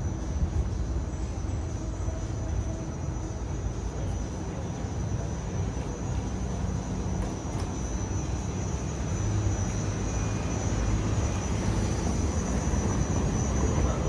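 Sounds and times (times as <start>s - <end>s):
thin high whine: 0.0s - 14.0s.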